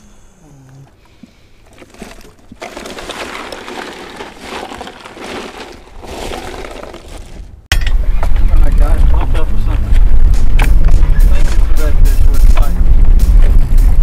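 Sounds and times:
ice crunching and rattling: 0:01.6 - 0:07.7.

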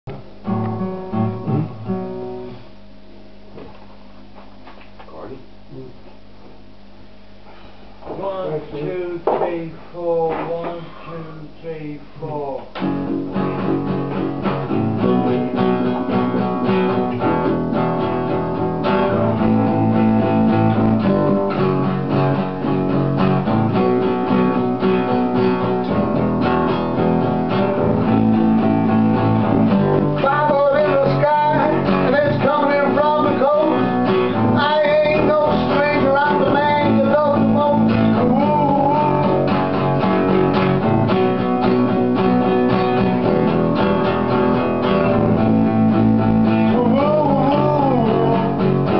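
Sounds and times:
bending guitar lead melody: 0:00.1 - 0:02.6, 0:12.8 - 0:48.9
acoustic guitar strumming chords: 0:00.1 - 0:02.8, 0:12.6 - 0:48.9
electric guitar: 0:00.1 - 0:02.8, 0:12.7 - 0:48.9.

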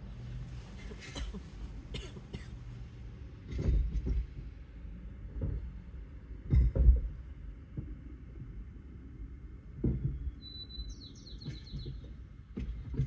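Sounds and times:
low steady rumble: 0:00.0 - 0:13.0
person coughing: 0:00.9 - 0:02.6.

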